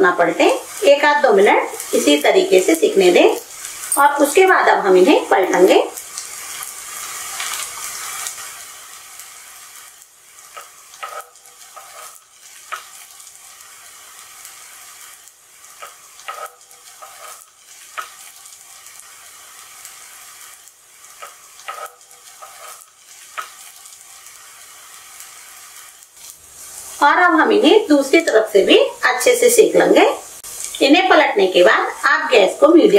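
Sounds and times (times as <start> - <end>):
food sizzling in oil: 0.0 - 32.9.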